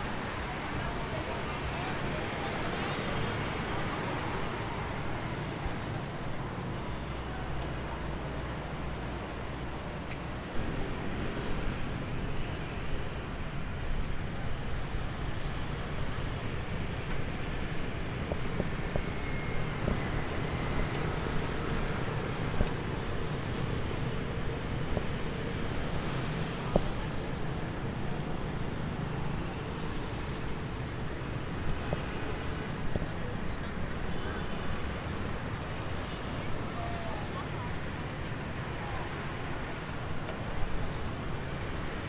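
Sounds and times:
road traffic with vehicles passing: 0:00.0 - 0:42.0.

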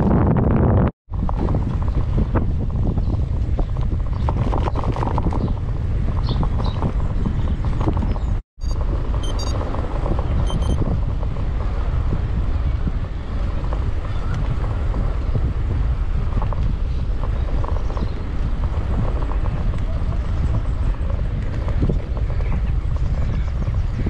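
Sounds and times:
road rumble: 0:00.0 - 0:24.0
wind buffeting microphone: 0:00.0 - 0:24.0
short high chirps: 0:08.6 - 0:09.6, 0:10.5 - 0:10.8.

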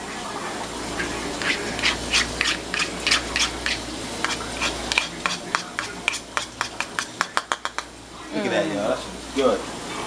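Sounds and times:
metal spoon scraping a pot: 0:01.4 - 0:07.8.

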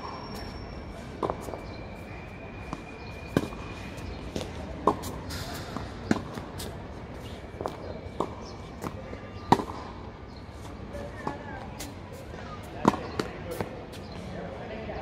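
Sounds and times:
tennis ball bouncing: 0:02.7 - 0:10.0, 0:12.6 - 0:13.8
rackets striking tennis ball: 0:03.2 - 0:06.8, 0:07.6 - 0:10.0, 0:11.2 - 0:14.1.

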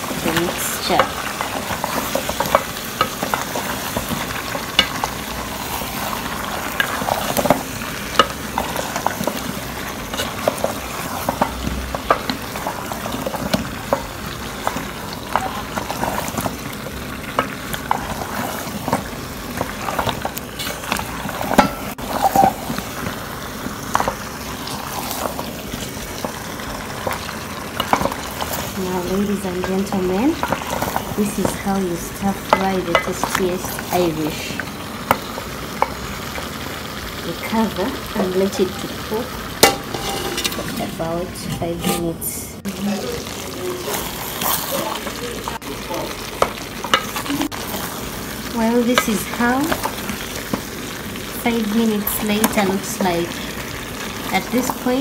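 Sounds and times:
sauce sizzling: 0:00.0 - 0:55.0
wooden spatula scraping a saucepan: 0:08.2 - 0:16.6, 0:17.3 - 0:22.9, 0:39.6 - 0:42.4.

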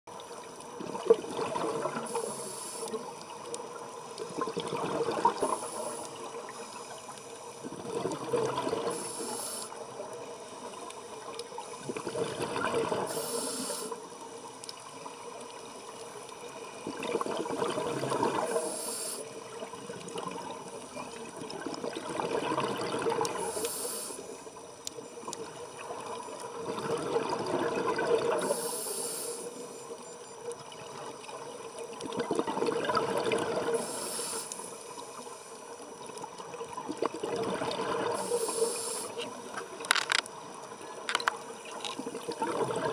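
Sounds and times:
exhaled bubbles gurgling: 0:00.1 - 0:06.6, 0:07.6 - 0:14.2, 0:15.8 - 0:23.8, 0:25.2 - 0:28.7, 0:30.6 - 0:34.0, 0:35.9 - 0:42.9
regulator hiss: 0:02.0 - 0:03.1, 0:05.4 - 0:07.6, 0:08.9 - 0:09.9, 0:13.0 - 0:14.5, 0:18.5 - 0:19.5, 0:23.3 - 0:24.5, 0:28.4 - 0:29.9, 0:33.7 - 0:35.9, 0:38.2 - 0:39.4.

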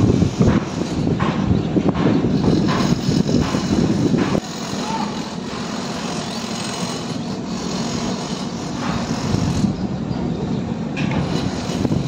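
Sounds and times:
engine running steadily: 0:00.0 - 0:12.0.

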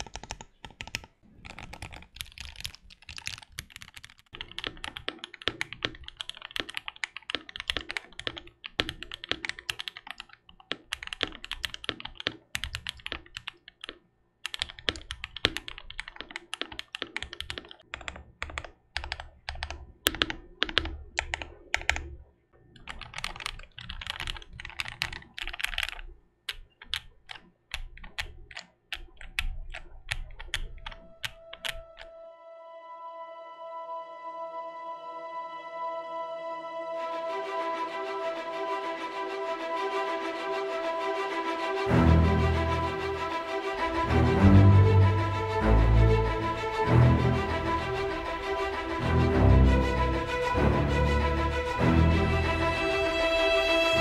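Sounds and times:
mechanical keyboard typing: 0:00.0 - 0:22.1, 0:22.8 - 0:32.2.

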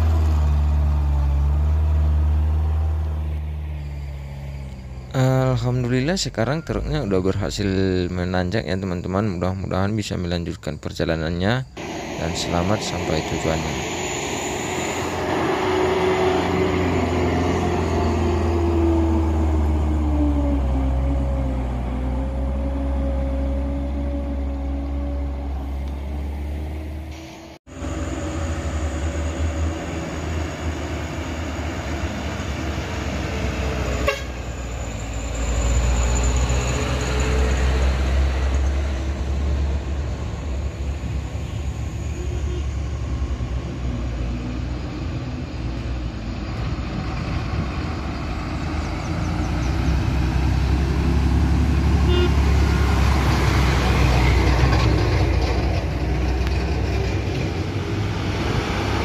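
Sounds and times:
vehicle engines climbing a hill: 0:00.0 - 0:59.0
horn tooting: 0:33.8 - 0:34.6, 0:41.4 - 0:43.0, 0:51.8 - 0:53.2.

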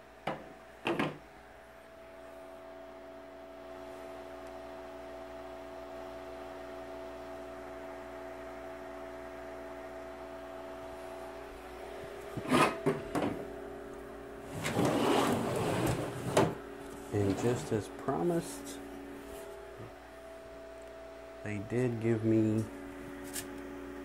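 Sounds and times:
steady hum: 0:00.0 - 0:24.0.

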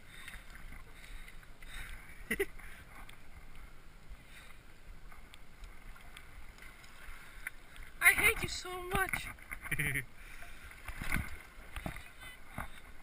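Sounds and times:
faint wind: 0:00.0 - 0:13.0
water: 0:00.0 - 0:13.0.

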